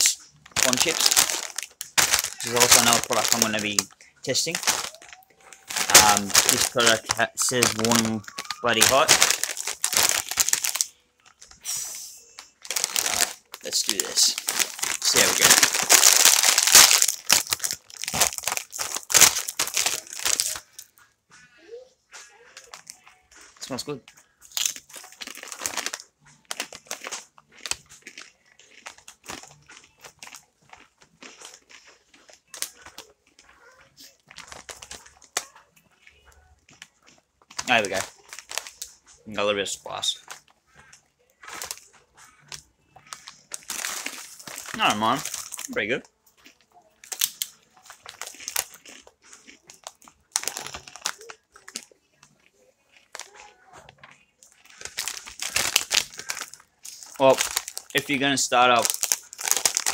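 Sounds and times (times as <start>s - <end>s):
chips being crunched: 0.0s - 10.9s, 11.7s - 20.6s, 24.4s - 32.0s, 37.5s - 38.8s, 41.4s - 45.8s, 47.1s - 51.9s
foil packet crinkling: 0.0s - 20.9s, 22.2s - 59.9s.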